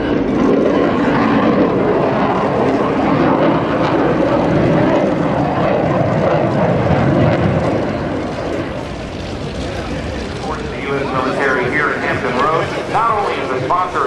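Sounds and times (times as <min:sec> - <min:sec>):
jet flying past: 0:00.0 - 0:14.0.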